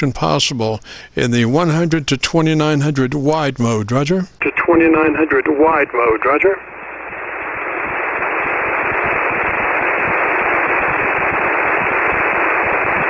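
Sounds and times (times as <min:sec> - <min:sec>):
radio receiver hiss: 0:04.3 - 0:13.0.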